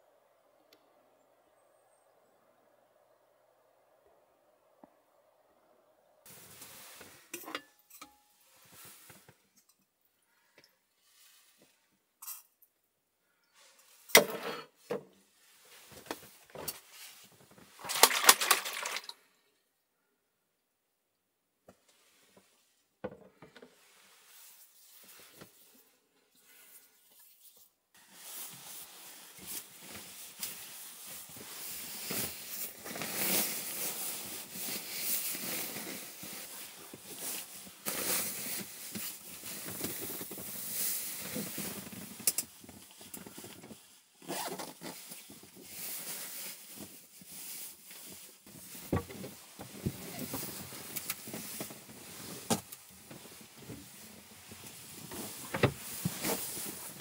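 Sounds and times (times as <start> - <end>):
fabric rustling: 28.0 - 57.0.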